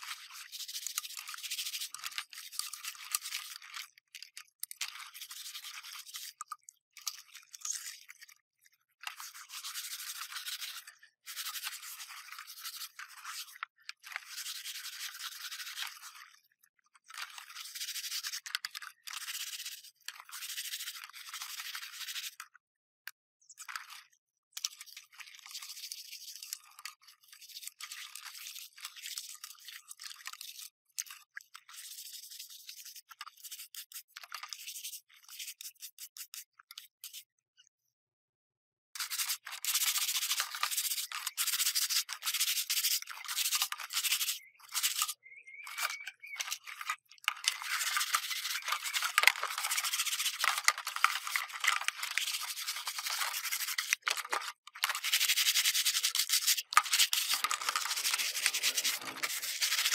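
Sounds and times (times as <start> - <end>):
brush scrubbing hard surface: 9.1 - 16.3, 17.2 - 22.4, 27.2 - 37.2, 39.0 - 45.2, 46.4 - 59.9.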